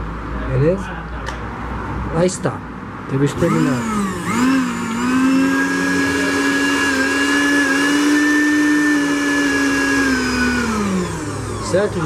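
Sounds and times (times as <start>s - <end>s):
blender motor whining: 3.3s - 12.0s.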